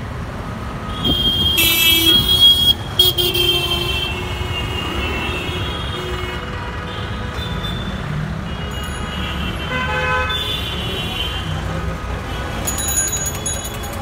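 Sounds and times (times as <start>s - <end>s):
road traffic: 0.0s - 14.0s
vehicle horns honking: 0.8s - 11.7s.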